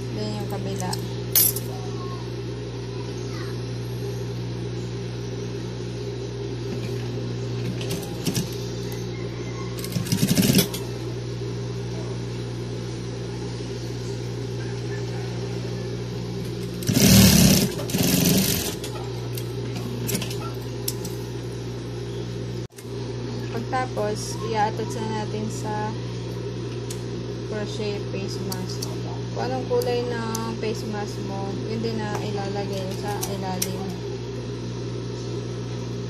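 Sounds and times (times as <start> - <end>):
sewing machine motor humming: 7.6 - 8.8, 9.8 - 10.9, 16.4 - 19.1
sewing machine stitching: 9.8 - 10.8, 16.8 - 18.9.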